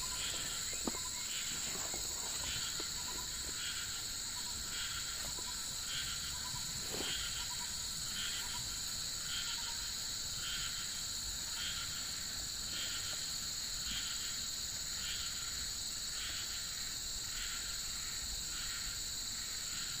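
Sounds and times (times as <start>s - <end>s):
insects droning: 0.0s - 20.0s
pulsing insect call: 0.0s - 20.0s.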